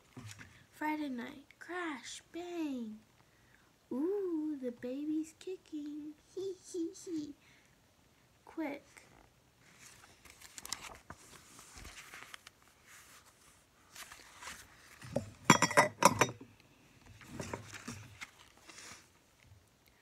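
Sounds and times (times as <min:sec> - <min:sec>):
muffled shuffle: 0:09.0 - 0:15.4
paper rustling: 0:09.6 - 0:15.1, 0:17.3 - 0:19.1.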